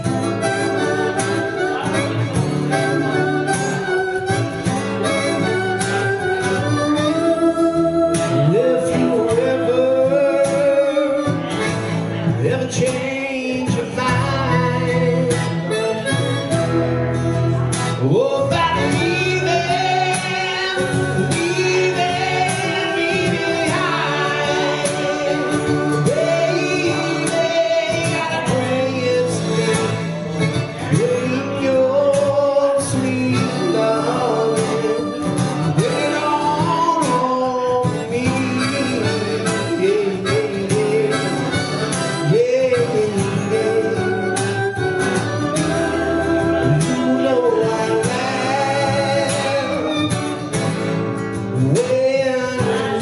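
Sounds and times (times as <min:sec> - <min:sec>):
acoustic guitar strumming: 0:00.0 - 0:53.0
harmonica melody: 0:00.0 - 0:53.0.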